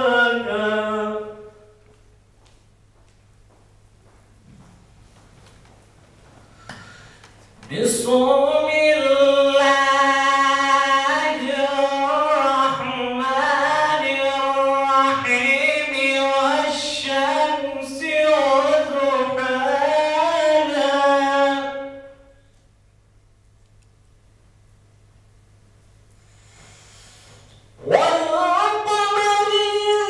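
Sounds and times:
man reciting melodically: 0.0s - 1.7s, 7.6s - 22.2s, 27.8s - 30.0s.

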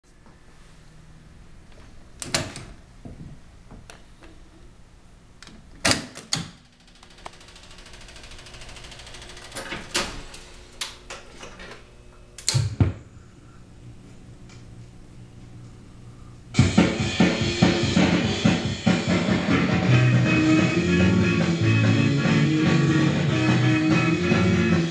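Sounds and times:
jukebox mechanism whirring: 6.1s - 12.6s.

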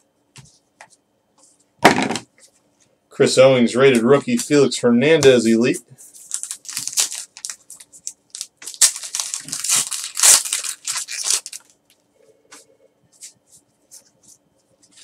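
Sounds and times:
cards rustling and ticking: 6.2s - 11.7s
foil wrapper tearing and crinkling: 6.3s - 11.8s.

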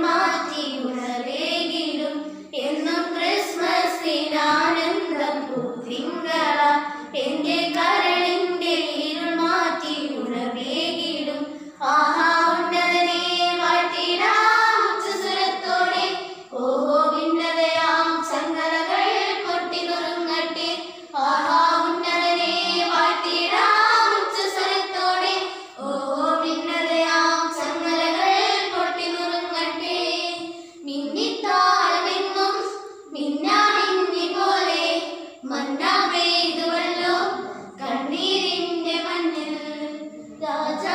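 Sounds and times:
young girls singing: 0.0s - 40.9s.

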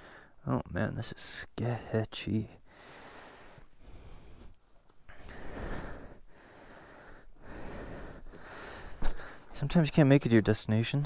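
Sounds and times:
person breathing: 0.0s - 0.4s, 2.6s - 9.6s.

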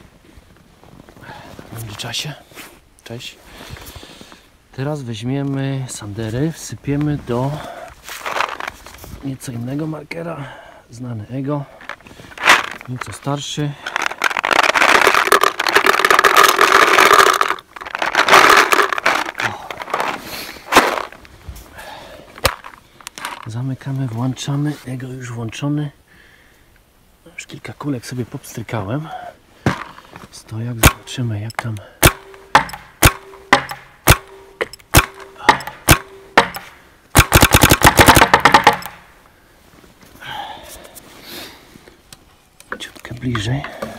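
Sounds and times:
paintballs rattling in plastic hopper: 13.9s - 21.2s, 37.2s - 39.0s
paintball marker firing shots: 30.8s - 31.2s, 32.0s - 39.1s
sharp click: 30.8s - 39.0s.

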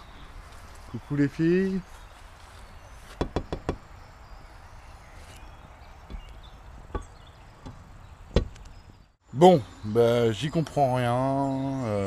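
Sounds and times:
knocks on a window: 3.2s - 3.8s.

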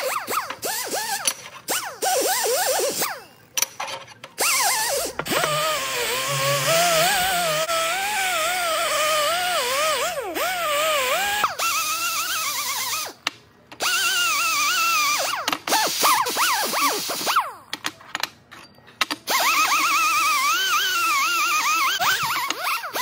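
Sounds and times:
air die grinder whining: 4.4s - 13.1s.

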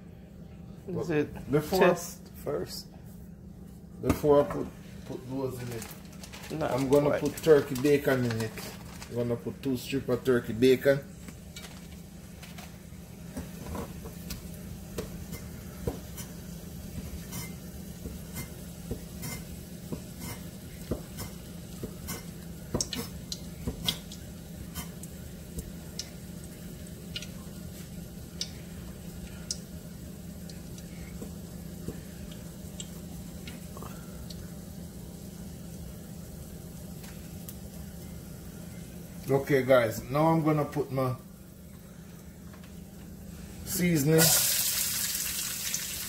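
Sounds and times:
steady low hum: 0.0s - 44.4s.

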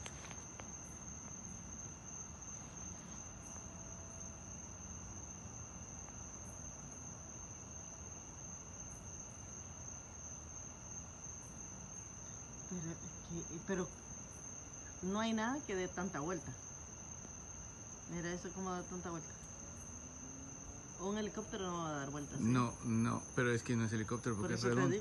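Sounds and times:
faint background hiss: 0.0s - 25.0s
insect chorus trilling: 0.0s - 25.0s.

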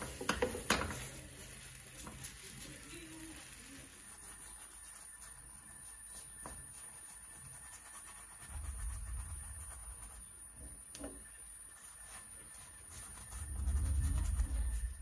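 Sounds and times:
roti frying in oiled pan: 0.0s - 7.7s.

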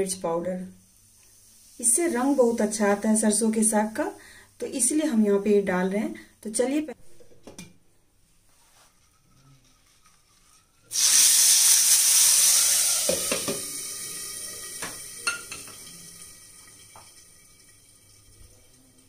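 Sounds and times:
hot oil sizzling: 0.6s - 4.3s, 10.9s - 19.0s.

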